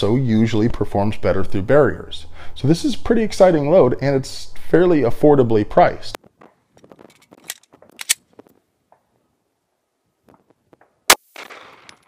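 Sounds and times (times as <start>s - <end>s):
pistol shot with echo: 11.1s - 12.0s.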